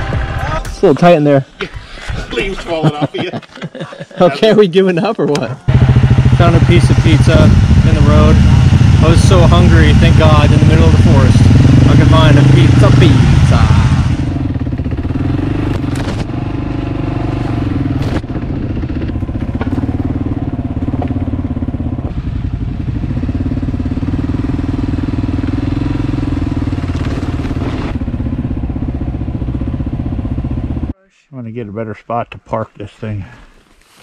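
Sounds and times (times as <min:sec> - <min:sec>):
motorcycle engine running: 0:00.0 - 0:00.6, 0:05.7 - 0:30.9
branches scraping bike: 0:33.0 - 0:34.0.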